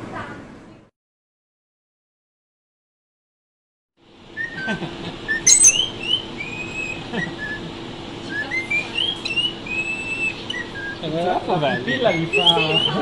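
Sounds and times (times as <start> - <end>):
parakeets chirping and whistling: 5.4 - 6.7, 11.8 - 13.0
parakeet squawks: 5.5 - 6.0.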